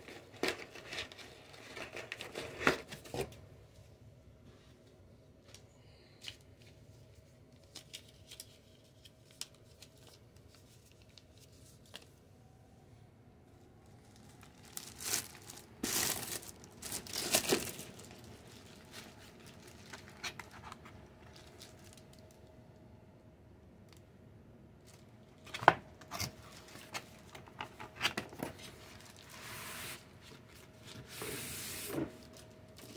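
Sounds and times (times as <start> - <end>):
plastic wrap tearing and crinkling: 14.0 - 22.3.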